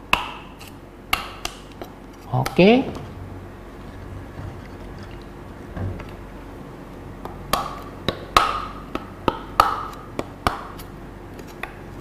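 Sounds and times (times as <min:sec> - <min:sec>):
knife hacking coconut: 0:00.1 - 0:03.0, 0:07.2 - 0:11.8.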